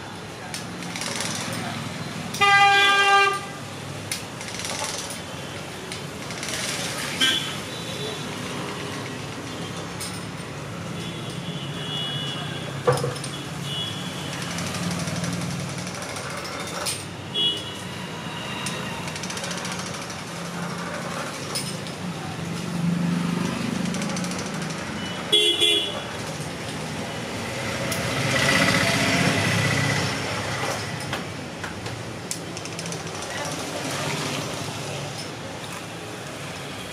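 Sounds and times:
street traffic: 0.0 - 36.9
vehicle horn honks: 2.4 - 3.6, 25.0 - 26.0.

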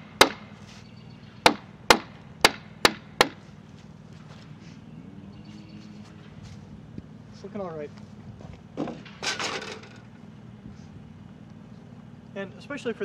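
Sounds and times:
wooden mallet striking chisel: 1.4 - 3.4.

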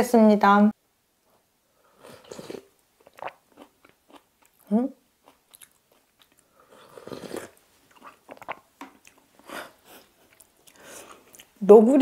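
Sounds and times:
soft chewing with mouth clicks: 2.0 - 11.6.

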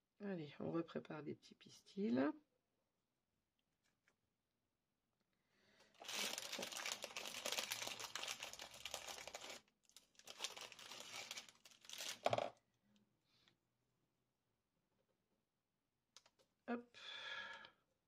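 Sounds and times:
craft supplies crinkling: 5.8 - 12.5.

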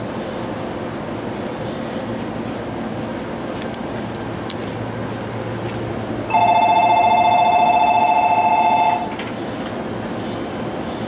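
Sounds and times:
electronic two-tone bell trill: 6.3 - 9.1.

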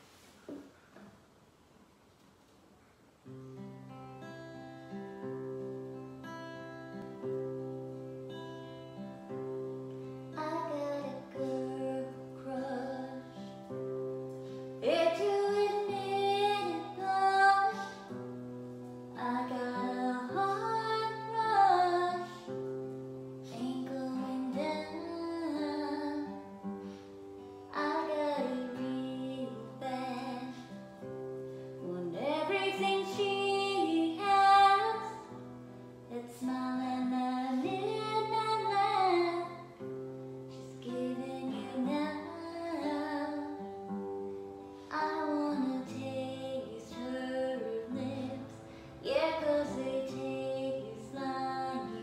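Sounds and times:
acoustic guitar: 0.0 - 52.0
woman singing: 10.3 - 13.9, 14.7 - 26.7, 27.6 - 31.1, 31.7 - 35.5, 36.1 - 39.9, 40.5 - 44.2, 44.8 - 52.0.

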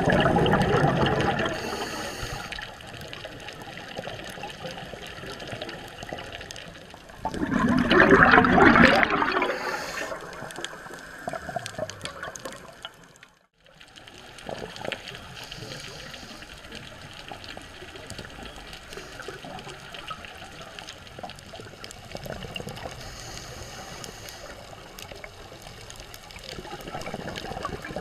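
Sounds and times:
diver's bubbles rushing underwater: 0.0 - 1.8, 3.2 - 13.2, 26.6 - 28.0.

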